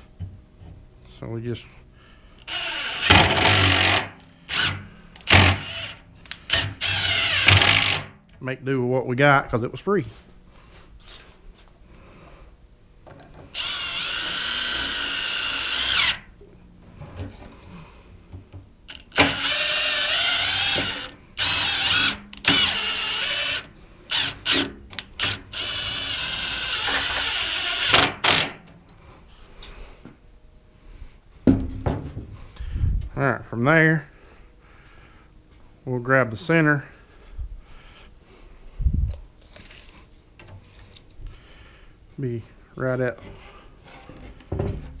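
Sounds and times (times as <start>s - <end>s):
impact driver driving screws: 2.4s - 8.2s, 18.9s - 28.6s.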